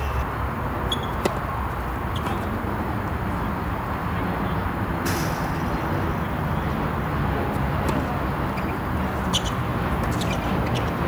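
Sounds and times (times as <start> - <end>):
tennis ball strike: 0.9 - 1.4.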